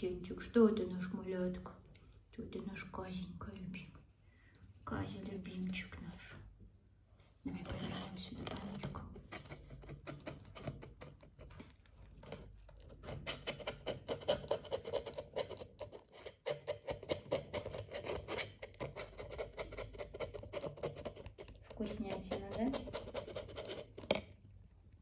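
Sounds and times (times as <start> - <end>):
rat licking plastic cup: 8.5 - 25.0.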